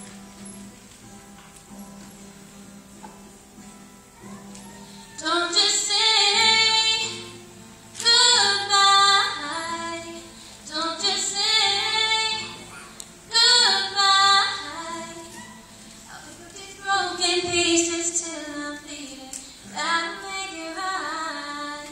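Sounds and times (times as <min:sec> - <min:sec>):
faint acoustic guitar: 0:00.0 - 0:21.9
girl singing a pop ballad: 0:04.2 - 0:07.4, 0:08.0 - 0:21.9.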